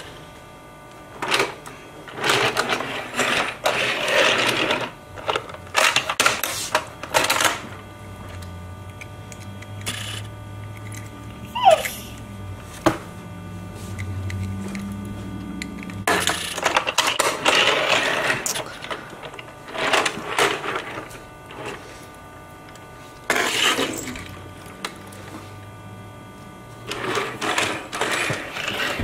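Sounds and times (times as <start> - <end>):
toy cars rattling and clattering: 1.2 - 7.6, 9.8 - 11.1, 15.7 - 21.8, 23.3 - 25.1, 26.9 - 29.0.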